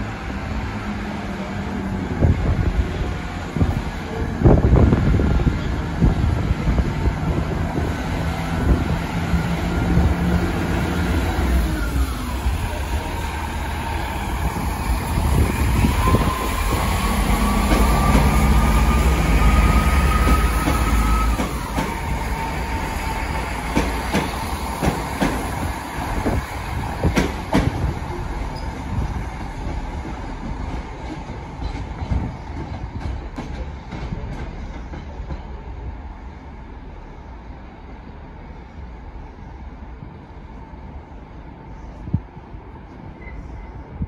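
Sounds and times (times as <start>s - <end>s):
diesel train engine whine: 0.0s - 33.0s
wheels clacking over rail joints: 23.6s - 25.6s.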